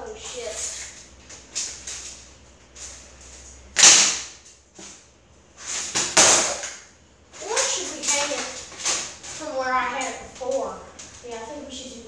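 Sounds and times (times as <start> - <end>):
plastic fan crashing on concrete: 3.7 - 4.5, 5.7 - 9.4.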